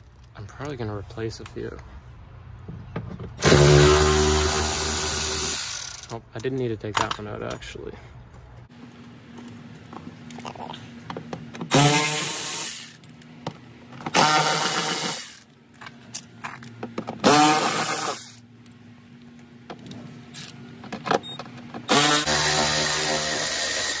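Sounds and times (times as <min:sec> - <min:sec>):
cordless ratchet whirring: 0:03.4 - 0:06.2, 0:21.9 - 0:24.0.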